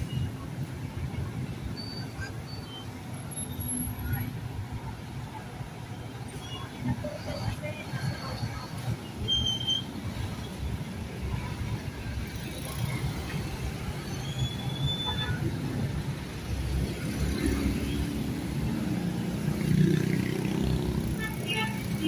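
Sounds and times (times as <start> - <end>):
traffic rumble: 0.0 - 22.0
short high squeals: 9.2 - 10.0, 14.0 - 15.5.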